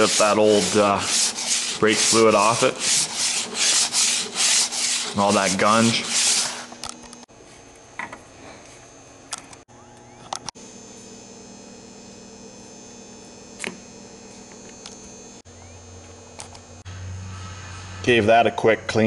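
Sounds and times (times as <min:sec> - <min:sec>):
low electrical hum: 0:00.0 - 0:19.0
faint high whine: 0:09.7 - 0:19.0.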